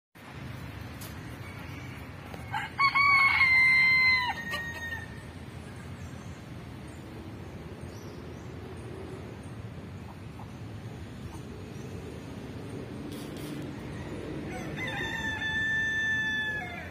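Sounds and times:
rooster crowing: 1.3s - 5.2s, 13.7s - 16.9s.

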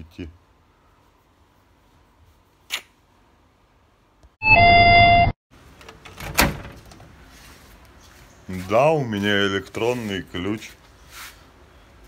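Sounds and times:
loud electronic chime: 4.4s - 5.3s.

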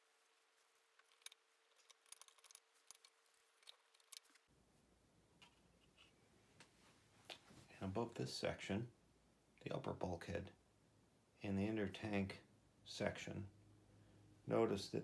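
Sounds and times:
plastic parts clicking and tapping: 1.0s - 4.4s.

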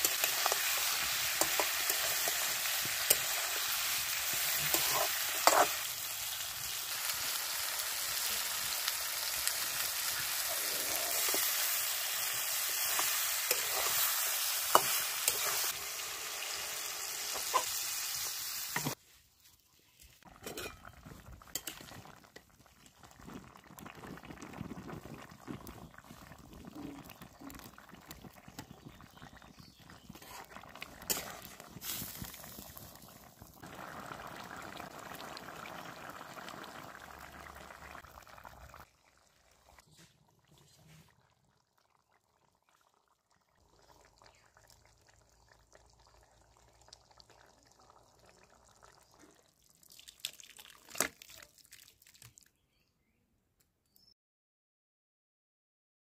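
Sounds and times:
food sizzling in a wok: 0.0s - 19.0s, 29.5s - 38.0s
metal spatula scraping a pan: 4.5s - 5.8s, 12.8s - 15.8s, 20.4s - 20.9s
curry bubbling in broth: 20.2s - 52.3s
ladle clinking: 20.3s - 22.0s.

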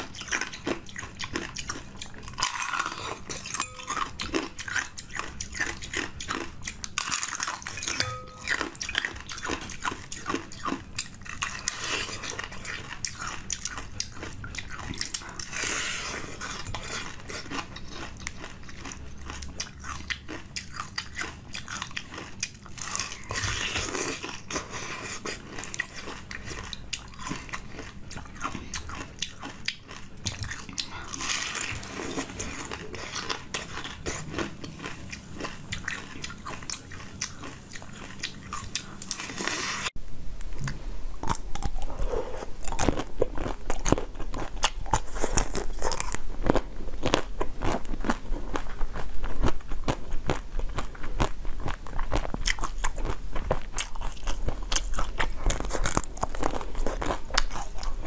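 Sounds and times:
food biting and crunching: 0.0s - 39.9s, 40.5s - 58.0s
ice crunching while chewed: 0.0s - 39.9s, 40.6s - 58.0s.

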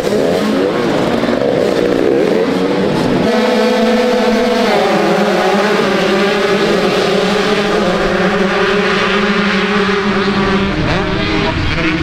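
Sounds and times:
motocross bike engine running hard: 0.0s - 12.0s.

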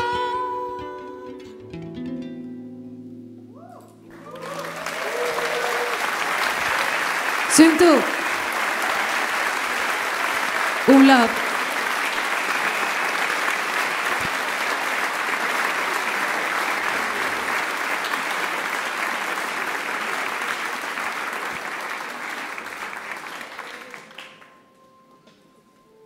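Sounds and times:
audience applauding: 4.1s - 24.7s.

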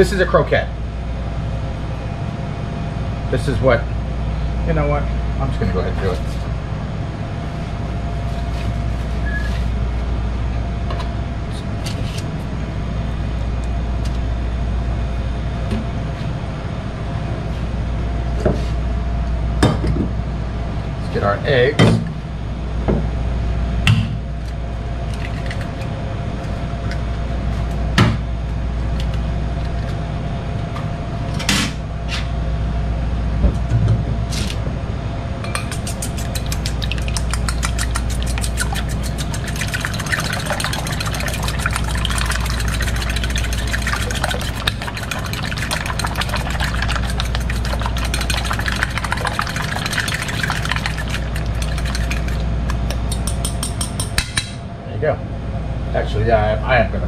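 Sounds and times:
fork whisking in steel bowl: 35.5s - 54.2s.

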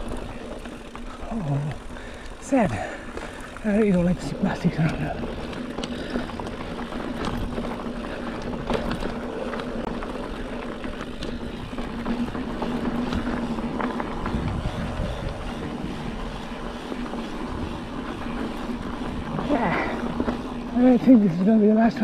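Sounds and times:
bike rattles and knocks: 0.0s - 22.0s
tyres crunching over stones: 0.0s - 22.0s
wind on microphone: 14.1s - 16.2s.

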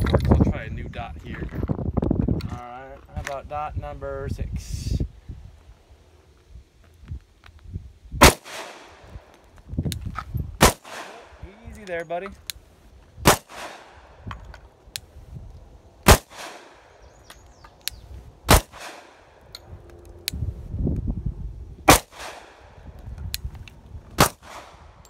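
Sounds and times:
pistol shots: 8.2s - 9.0s, 10.6s - 11.4s, 13.2s - 14.2s, 16.0s - 16.9s, 18.5s - 19.3s, 21.9s - 22.7s, 24.2s - 24.8s.

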